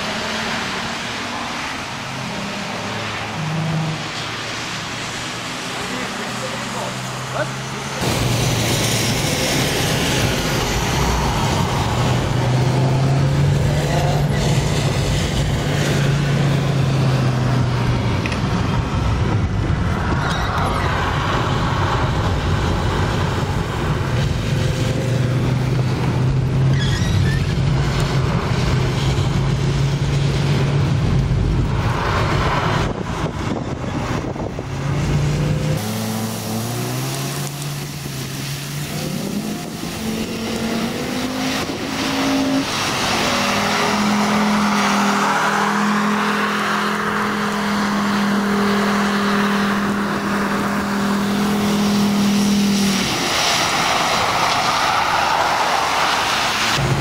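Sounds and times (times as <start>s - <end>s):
tyres hissing on wet road: 0.0s - 18.9s, 20.7s - 33.2s, 34.9s - 57.0s.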